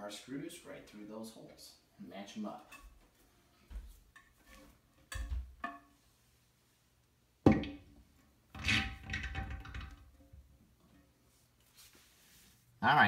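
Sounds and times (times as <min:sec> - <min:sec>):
porcelain knocks and clunk: 0:05.0 - 0:05.9, 0:07.4 - 0:07.9, 0:08.6 - 0:10.2
porcelain scraping and clattering: 0:08.6 - 0:10.0.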